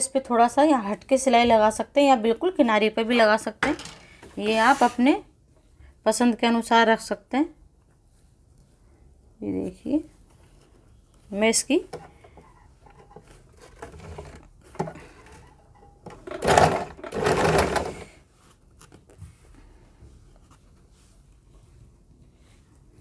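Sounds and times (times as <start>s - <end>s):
sewing machine stitching: 13.6s - 18.2s.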